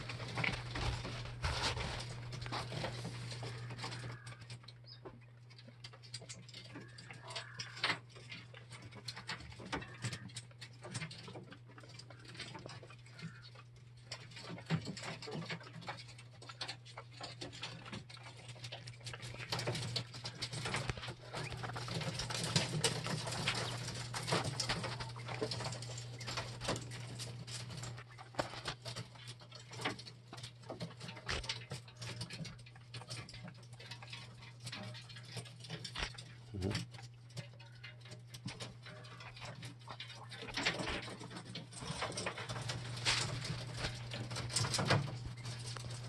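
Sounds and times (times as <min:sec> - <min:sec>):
quail pecking on wire mesh: 0:00.0 - 0:46.0
steady low hum: 0:00.0 - 0:46.0
soft bird calls: 0:02.6 - 0:05.4, 0:06.6 - 0:08.4, 0:09.2 - 0:10.4, 0:12.0 - 0:13.8.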